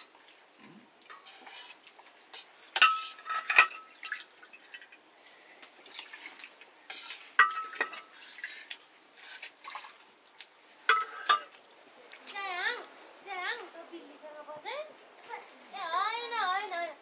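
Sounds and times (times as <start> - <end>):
utensil scraping on a plate: 1.1 - 3.8, 6.9 - 8.8.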